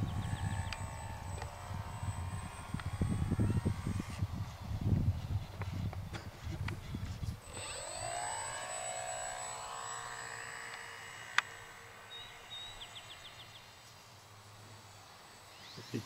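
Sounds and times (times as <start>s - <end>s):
model plane motor whining: 0.0s - 16.0s
sharp click: 0.6s - 1.5s.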